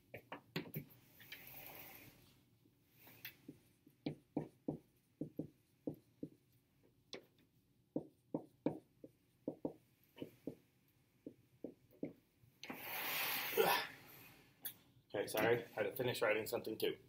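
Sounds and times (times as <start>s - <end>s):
marker writing on whiteboard: 0.0s - 2.0s, 3.3s - 12.8s.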